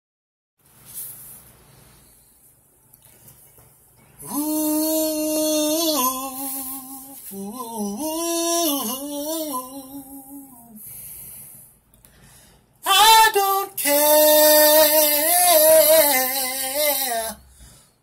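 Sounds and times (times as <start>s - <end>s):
man singing unaccompanied: 4.2s - 10.8s, 12.8s - 17.5s.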